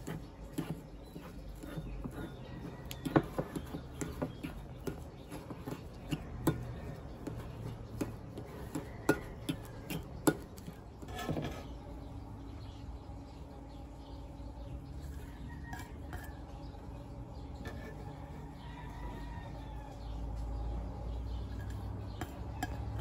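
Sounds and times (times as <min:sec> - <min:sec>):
fork scraping ceramic bowl: 0:00.0 - 0:11.9, 0:15.0 - 0:19.6, 0:21.3 - 0:23.0.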